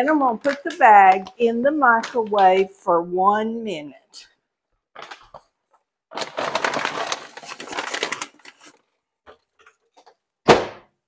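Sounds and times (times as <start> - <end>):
paper sack crinkling: 0.1 - 2.4, 6.1 - 9.5
thump: 10.5 - 10.9.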